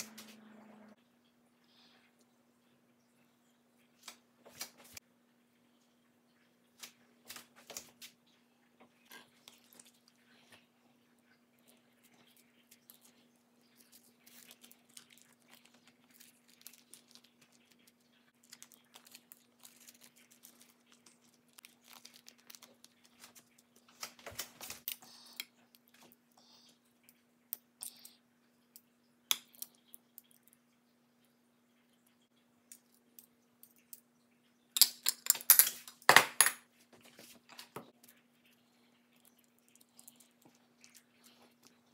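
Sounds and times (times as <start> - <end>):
steady low hum: 0.0 - 2.5
seaweed sheet crinkling: 13.7 - 24.9.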